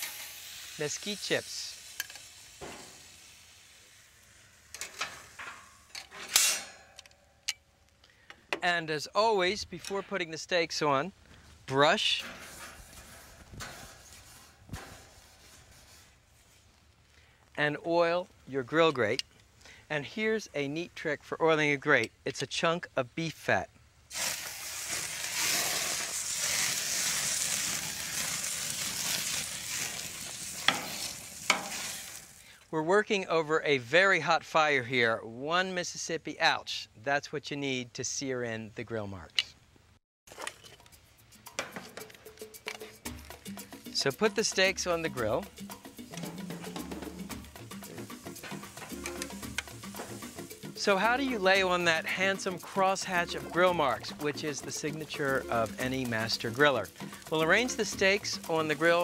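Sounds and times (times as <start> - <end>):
brief hiss: 0.0 - 5.3, 24.1 - 32.6
fat sizzling on hot grill: 0.0 - 5.9, 11.8 - 16.8, 24.1 - 32.6, 42.4 - 59.0.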